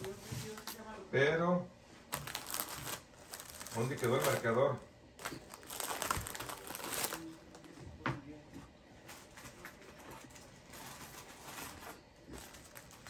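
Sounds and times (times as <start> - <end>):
faint rummaging: 0.0 - 0.8, 2.1 - 4.6, 5.2 - 7.7, 9.1 - 13.0
plastic packet crinkling: 2.1 - 7.4, 10.1 - 13.0.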